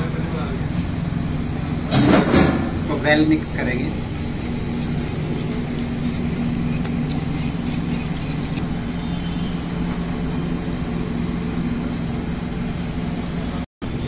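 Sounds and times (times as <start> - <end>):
low machine hum: 0.0 - 14.0
whisk scraping ceramic bowl: 3.4 - 8.6.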